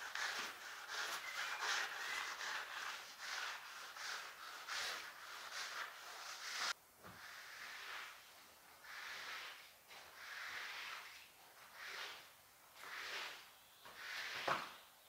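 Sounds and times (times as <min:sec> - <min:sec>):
squeegee swishing on wet tiles: 0:00.0 - 0:14.8.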